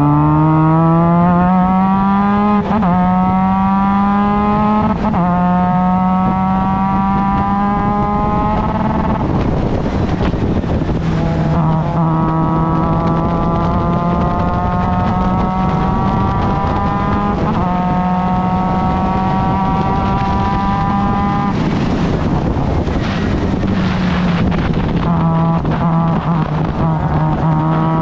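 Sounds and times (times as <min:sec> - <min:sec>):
race car engine revving: 0:00.0 - 0:28.0.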